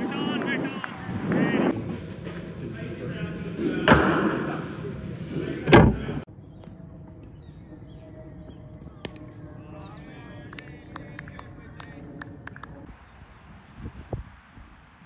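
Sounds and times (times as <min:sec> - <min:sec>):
distant voices: 0:00.0 - 0:12.9
birds chirping: 0:06.2 - 0:11.3.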